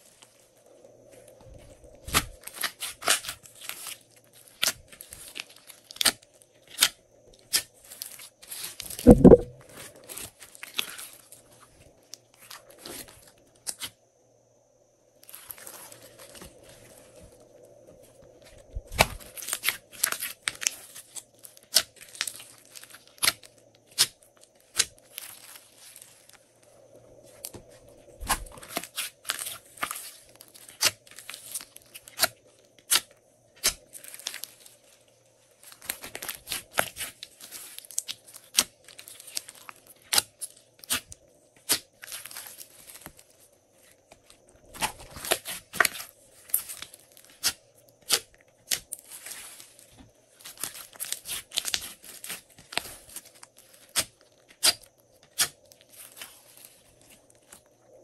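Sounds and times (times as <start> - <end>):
slime squeezed by hand: 9.0 - 9.6.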